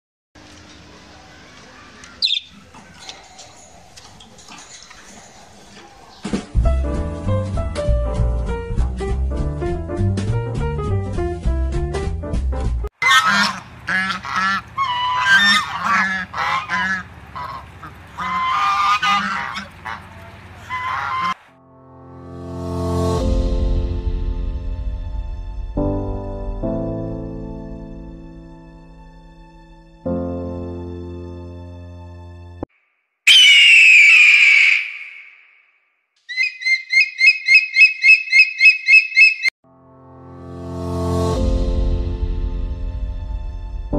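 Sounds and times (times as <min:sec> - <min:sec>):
high piping bird notes: 0:01.3 - 0:04.0, 0:13.0 - 0:21.4, 0:33.3 - 0:39.5
geese honking: 0:13.0 - 0:21.5, 0:33.3 - 0:35.5, 0:36.3 - 0:39.5
bird of prey screaming: 0:33.3 - 0:35.6, 0:36.3 - 0:39.5.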